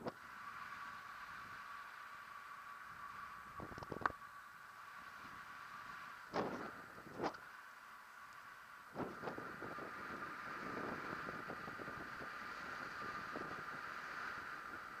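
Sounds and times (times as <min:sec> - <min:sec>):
wind rushing over microphone: 0:08.9 - 0:15.0.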